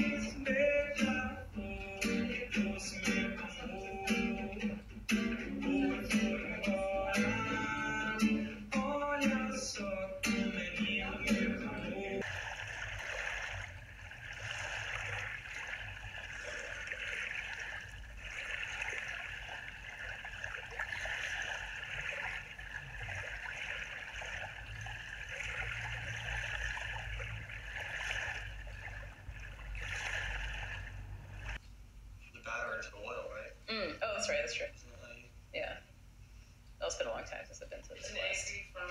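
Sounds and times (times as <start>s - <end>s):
water sloshing and gurgling: 12.0s - 31.6s.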